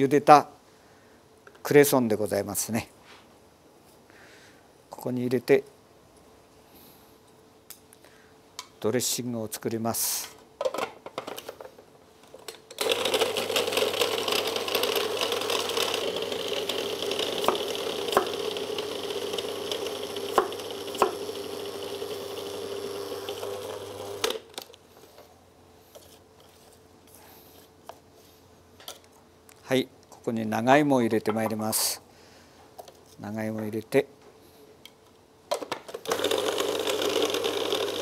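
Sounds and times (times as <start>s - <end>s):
food processor running: 12.8s - 24.5s, 36.0s - 38.0s.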